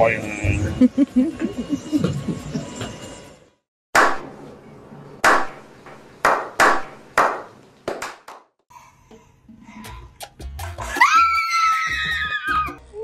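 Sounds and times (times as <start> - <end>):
hand claps: 6.2 - 8.5.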